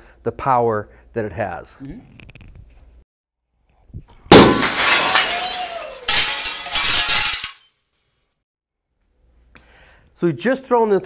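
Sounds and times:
broken glass tinkling: 4.3s - 7.7s
glass pane shattering: 4.3s - 7.7s.

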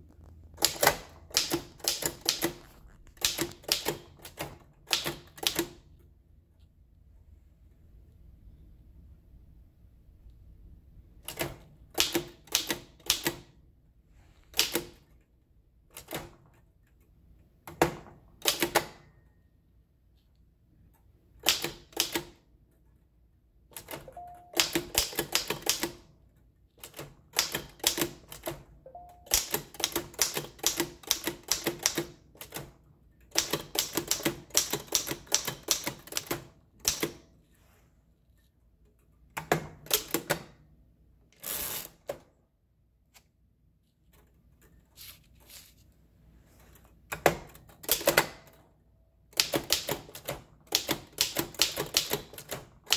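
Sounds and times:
typewriter keystrokes: 0.6s - 5.8s, 11.2s - 13.5s, 14.5s - 15.1s, 17.7s - 19.1s, 21.4s - 22.4s, 23.7s - 26.1s, 26.8s - 37.3s, 47.1s - 48.6s, 49.3s - 52.9s.

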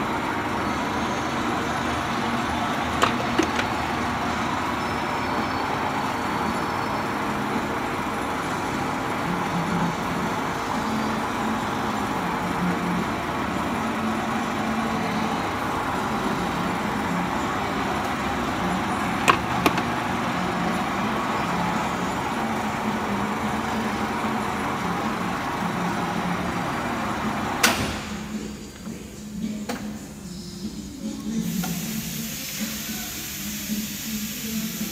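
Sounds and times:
lathe running: 0.0s - 27.6s.

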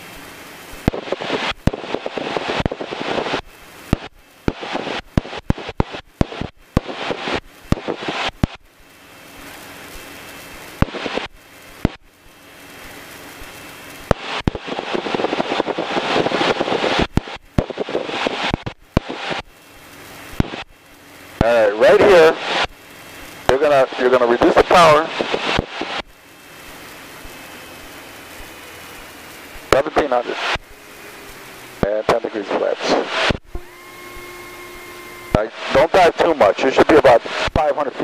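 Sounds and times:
radio static crackling with clicks: 0.0s - 38.0s
airplane cabin drone: 21.2s - 38.0s.

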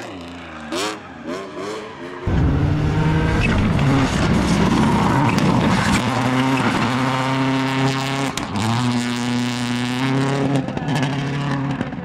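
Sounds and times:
rally car engine at high revs: 0.0s - 12.0s
sharp crack: 2.3s - 6.0s.

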